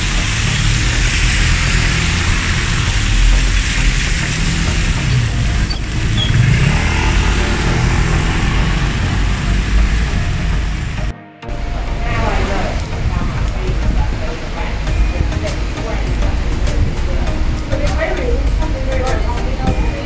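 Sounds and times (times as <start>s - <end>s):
high squeal: 0.0s - 13.0s
tyres hissing on wet road: 0.0s - 20.0s
vehicle engines rumbling: 0.0s - 20.0s.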